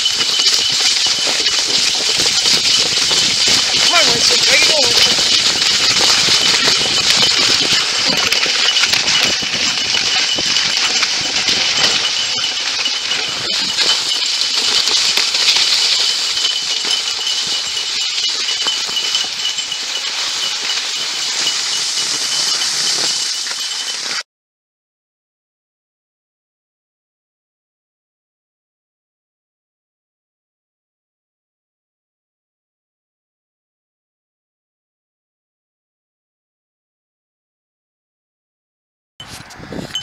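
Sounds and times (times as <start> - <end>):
sled rattling and clinking: 0.0 - 24.2, 39.2 - 40.0
sled runners scraping over snow: 0.0 - 24.2, 39.2 - 40.0.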